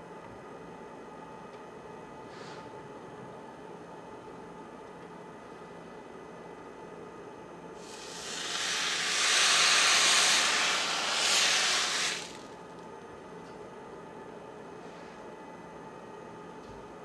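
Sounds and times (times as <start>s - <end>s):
water hissing into steam: 7.8s - 12.5s.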